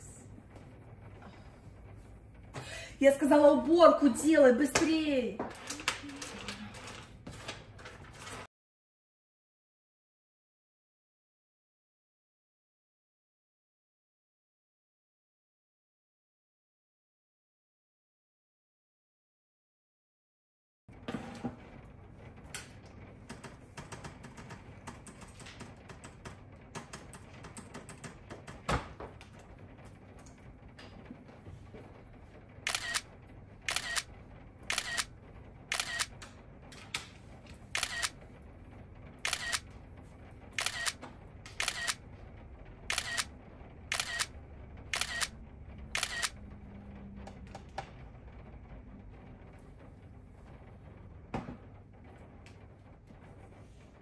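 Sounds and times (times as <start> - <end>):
phone camera shutter sound: 32.7 - 33.1, 33.7 - 34.1, 34.7 - 35.1, 35.7 - 36.1, 37.8 - 38.2, 39.2 - 39.6, 40.6 - 41.0, 41.6 - 42.0, 42.9 - 43.3, 43.9 - 44.3, 44.9 - 45.3, 46.0 - 46.4.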